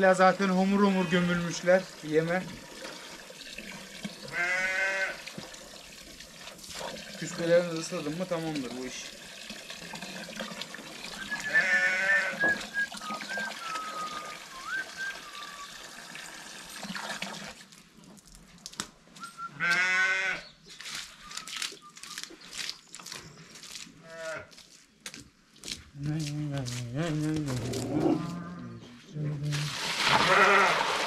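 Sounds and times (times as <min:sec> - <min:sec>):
water running onto feed: 0:00.0 - 0:18.8, 0:29.4 - 0:31.0
sheep bleating: 0:04.3 - 0:05.2, 0:11.4 - 0:12.5, 0:19.6 - 0:20.4, 0:24.0 - 0:24.5, 0:30.2 - 0:30.8.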